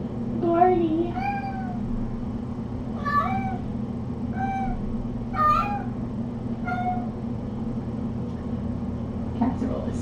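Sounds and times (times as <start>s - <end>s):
steady low hum: 0.0s - 10.0s
kitten meowing: 1.2s - 1.8s, 3.0s - 3.7s, 4.4s - 4.8s, 5.4s - 6.0s, 6.6s - 7.1s.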